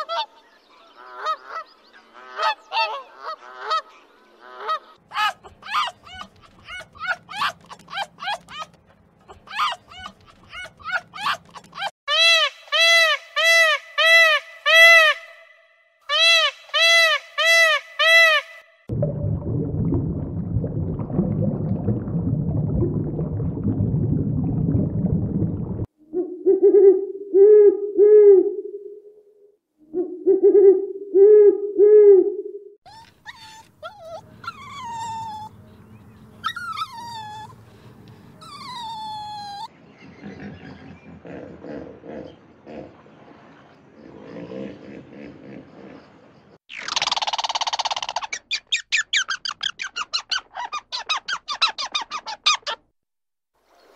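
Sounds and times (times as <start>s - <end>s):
puppy yelping: 5.1s - 8.8s, 9.4s - 11.9s, 32.9s - 35.6s, 36.4s - 37.6s, 38.4s - 39.7s
puppy whining: 32.9s - 35.6s, 36.4s - 37.6s, 38.4s - 39.7s.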